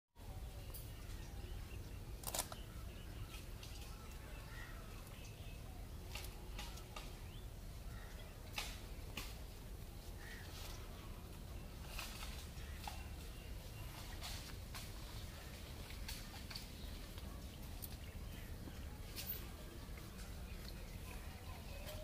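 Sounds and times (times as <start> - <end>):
camera handling rumble: 2.2 - 2.6
sharp clicks: 2.2 - 2.6.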